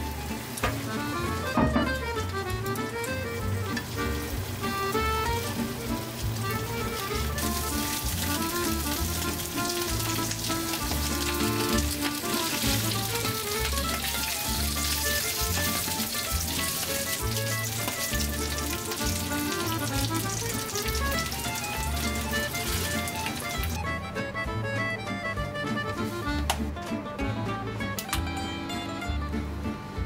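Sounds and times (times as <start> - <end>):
food sizzling in frying pan: 0.0 - 2.4, 3.7 - 23.8
background music: 0.0 - 30.0.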